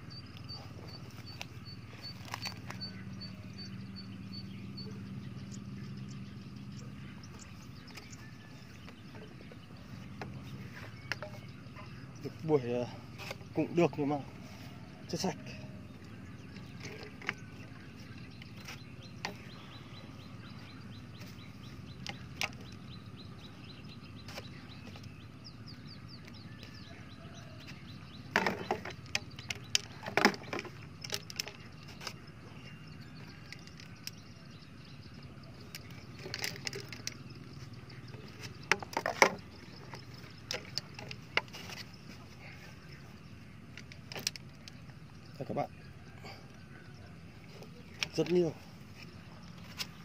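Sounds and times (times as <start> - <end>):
plastic tubes knocking and clattering: 28.3 - 31.6, 38.6 - 41.8.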